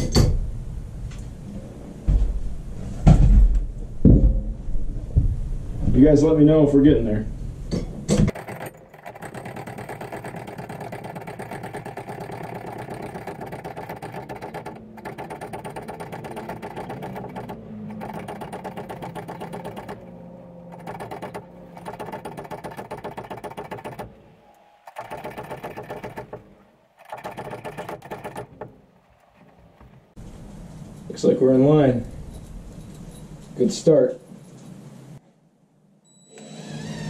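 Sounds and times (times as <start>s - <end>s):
cordless impact driver hammering: 7.8s - 20.1s, 20.7s - 24.2s.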